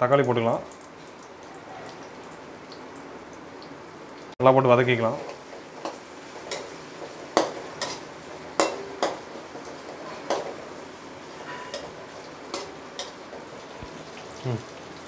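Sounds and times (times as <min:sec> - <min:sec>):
faint sizzle: 0:00.0 - 0:15.0
spatula scraping a pan: 0:08.6 - 0:10.7, 0:11.4 - 0:13.1.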